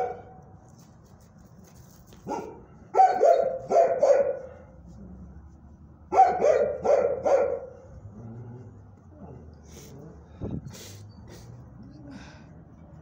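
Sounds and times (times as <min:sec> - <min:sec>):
dog barking: 0:00.0 - 0:00.3, 0:02.2 - 0:04.6, 0:06.1 - 0:07.8.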